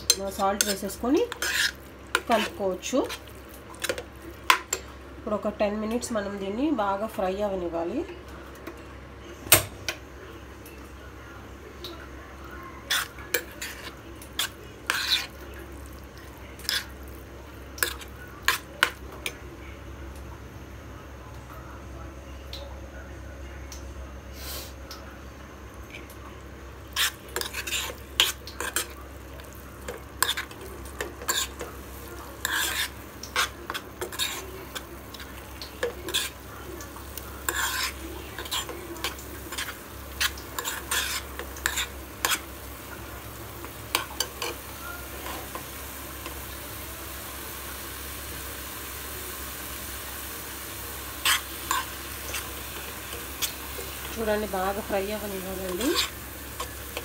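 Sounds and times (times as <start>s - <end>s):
food sizzling: 0.0s - 7.0s, 11.6s - 19.5s, 25.6s - 57.0s
metal spoon scraping pan: 0.1s - 3.2s, 12.9s - 15.4s, 26.9s - 31.7s, 32.4s - 36.4s, 37.4s - 42.5s, 51.2s - 57.0s.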